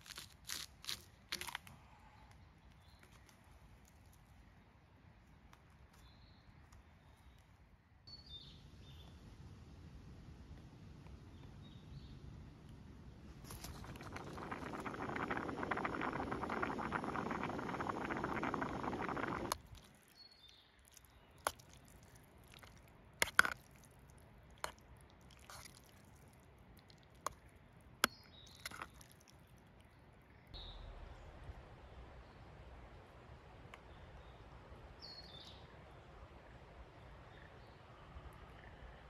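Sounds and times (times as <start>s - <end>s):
dense steady hiss: 12.1s - 19.6s
bird chirping: 30.3s - 31.4s.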